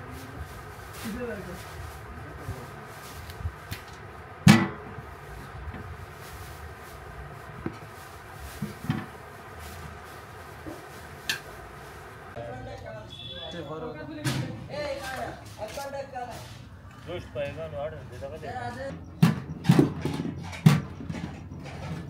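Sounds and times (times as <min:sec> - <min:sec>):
steady low hum: 0:00.0 - 0:12.7.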